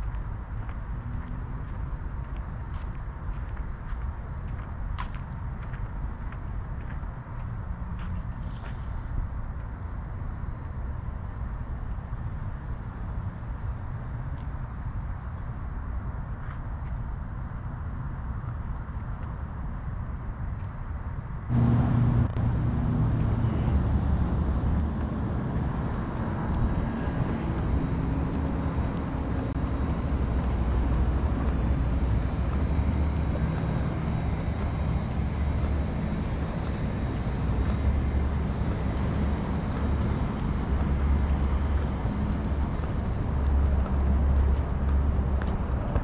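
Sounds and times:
low rumble and hiss: 0.0s - 46.0s.

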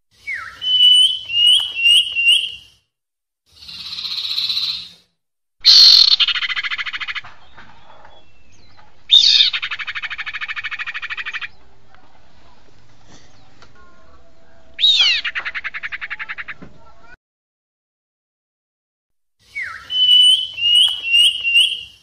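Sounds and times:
bird whistled notes: 0.2s - 2.8s, 19.5s - 22.0s.

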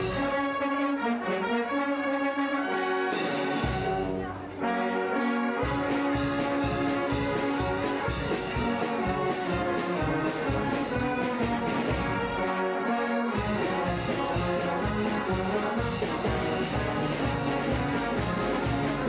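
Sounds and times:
steady drum beat: 0.0s - 0.5s, 3.1s - 4.5s, 5.6s - 12.4s, 13.3s - 19.0s
brass band march: 0.0s - 19.0s.

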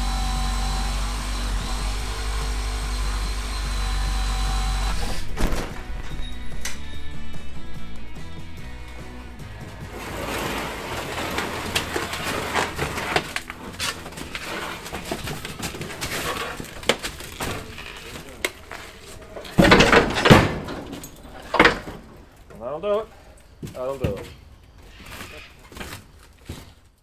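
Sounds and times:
heavy thumps: 4.9s - 22.2s
chassis rolling and scraping on metal: 5.0s - 25.9s
metal clanks and knocks: 8.9s - 22.6s.

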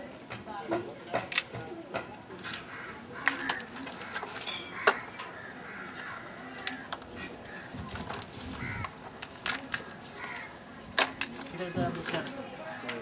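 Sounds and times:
crab shells clattering on plastic: 1.1s - 13.0s.

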